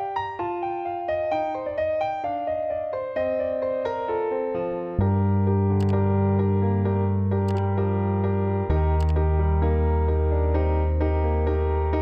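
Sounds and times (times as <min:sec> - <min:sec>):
electric piano music: 0:00.0 - 0:12.0
deep bass note: 0:05.0 - 0:11.0
brief click: 0:05.8 - 0:06.0, 0:07.5 - 0:07.7, 0:09.0 - 0:09.2.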